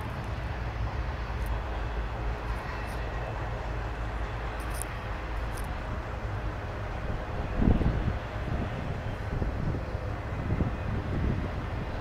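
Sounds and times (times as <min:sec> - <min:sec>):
freight train cars rumbling: 0:00.0 - 0:12.0
wind on microphone: 0:06.9 - 0:12.0.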